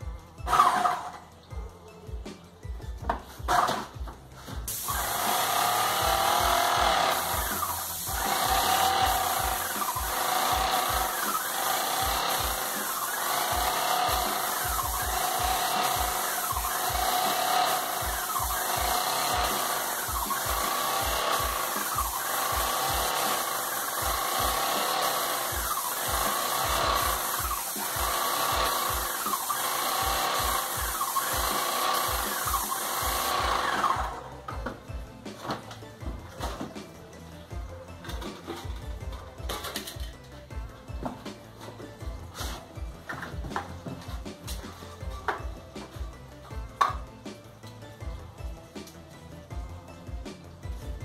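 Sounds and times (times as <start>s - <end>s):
paint spray hiss: 4.7s - 33.3s.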